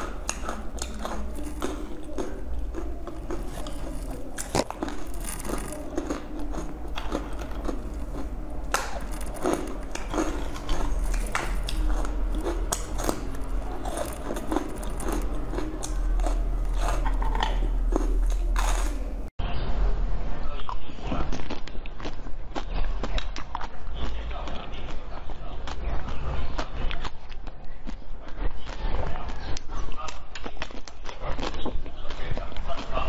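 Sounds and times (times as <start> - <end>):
person crunching crisp chips: 0.0 - 19.3
steady low hum: 0.0 - 20.7.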